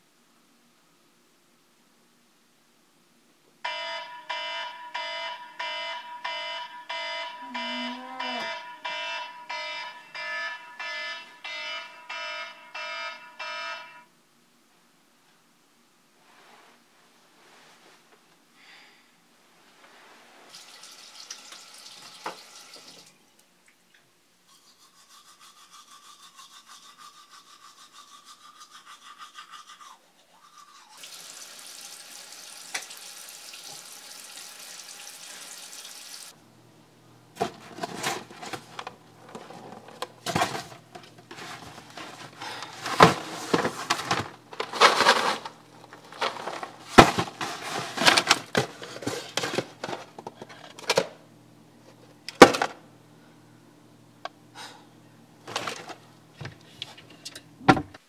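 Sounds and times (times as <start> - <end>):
teeth brushing: 24.5 - 31.0.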